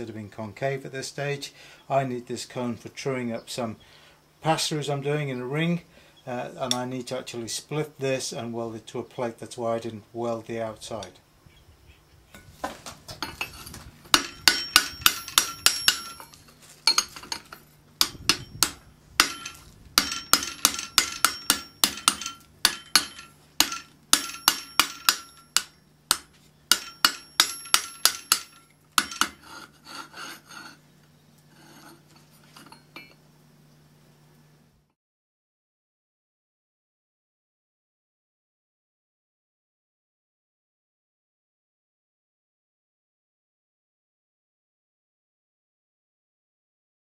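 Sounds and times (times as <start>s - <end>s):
steady low hum: 8.2s - 34.9s
hammer striking metal: 14.1s - 29.6s.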